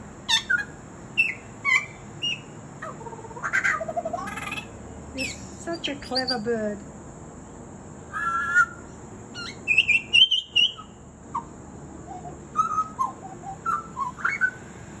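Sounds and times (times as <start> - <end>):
bird singing whistled phrases: 0.3 - 2.6, 8.1 - 11.5, 12.1 - 14.6.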